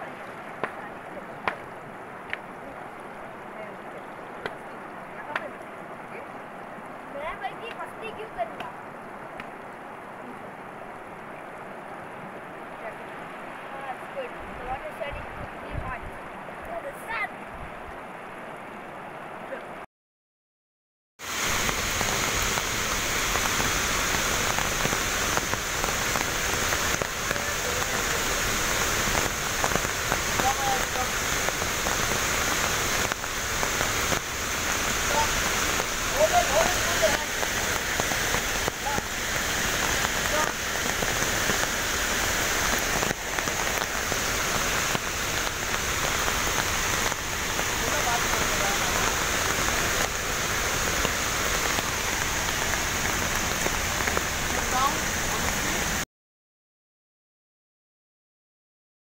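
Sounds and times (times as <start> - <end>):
rain pattering on leaves and rock: 0.0 - 17.2, 21.2 - 56.0.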